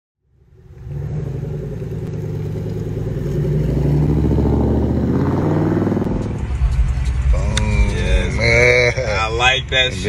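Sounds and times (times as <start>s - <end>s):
car engine pulling away: 0.3s - 8.6s.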